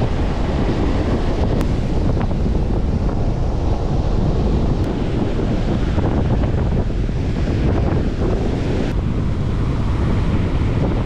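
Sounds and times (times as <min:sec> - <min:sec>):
surf breaking on a beach: 0:00.0 - 0:11.0
wind buffeting the microphone: 0:00.0 - 0:11.0.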